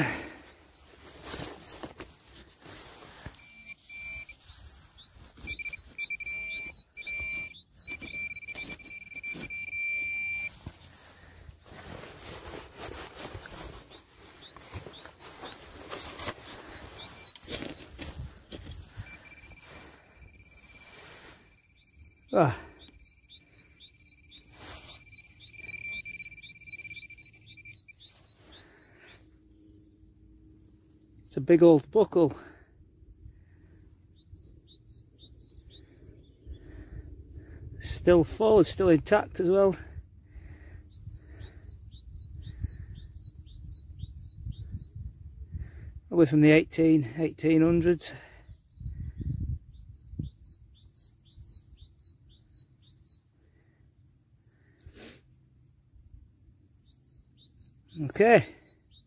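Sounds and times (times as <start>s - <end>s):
hands scraping loose earth: 0.2s - 21.5s, 24.4s - 27.1s
faint electronic chirp: 3.3s - 10.6s, 13.4s - 18.1s, 18.8s - 29.2s
pinpointer high-pitched tone: 3.3s - 10.6s, 19.0s - 28.1s.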